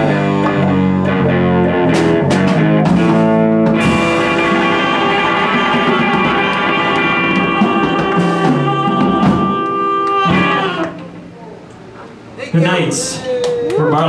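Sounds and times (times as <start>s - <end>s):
live band holding a chord: 0.0s - 11.7s
cymbal crash: 3.0s - 9.7s.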